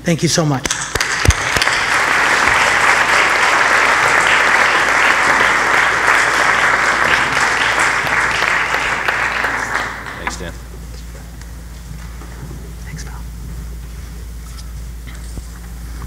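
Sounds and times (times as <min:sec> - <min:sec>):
sharp clap near microphone: 0:00.6 - 0:10.6
crowd applauding: 0:00.7 - 0:10.7.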